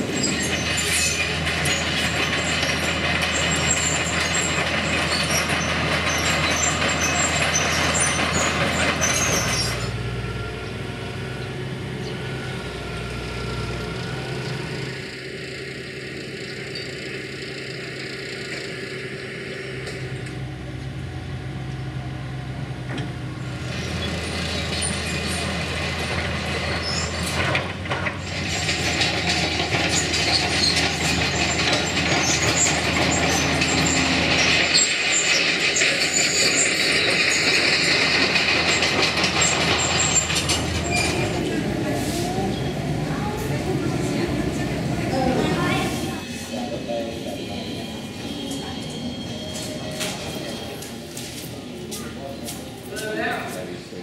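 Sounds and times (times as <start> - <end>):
machine clatter with squeaks: 0.0 - 10.1, 22.9 - 43.3, 45.1 - 53.7
diesel engine hum: 0.0 - 54.0.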